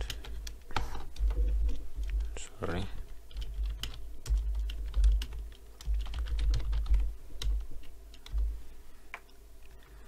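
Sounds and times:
dull low thumps: 8.2 - 8.7.

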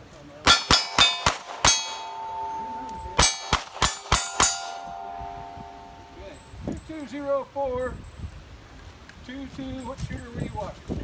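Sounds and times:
steel plates clanging: 0.4 - 7.1.

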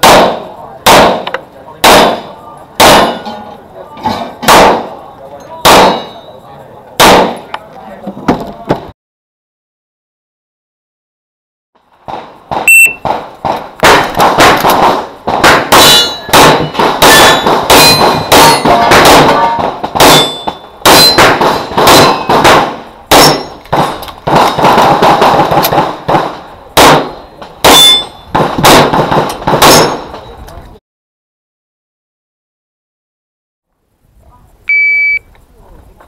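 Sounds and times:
pistol shots: 0.0 - 3.2, 4.4 - 5.0, 5.6 - 6.2, 7.0 - 7.5, 12.1 - 30.1
steel targets clanging: 2.9 - 6.5, 15.5 - 22.4, 23.1 - 24.0, 27.0 - 28.3
shot timer beep: 12.7 - 13.0, 34.7 - 35.3.

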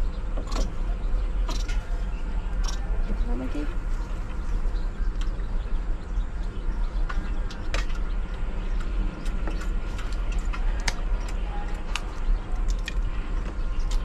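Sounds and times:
steady low rumble: 0.0 - 14.0
sharp light clicks and taps: 6.4 - 14.0.

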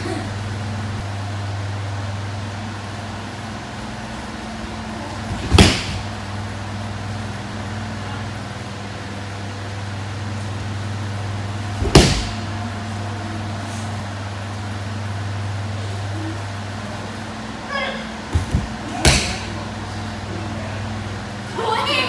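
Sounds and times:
steady low hum: 0.0 - 22.0
body thudding on mat: 11.8 - 12.4.

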